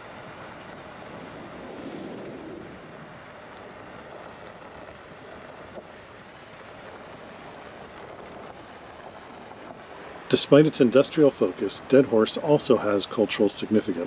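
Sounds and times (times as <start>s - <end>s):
wind noise on microphone: 0.0s - 13.2s
vehicle rumbling on gravel: 0.0s - 14.0s.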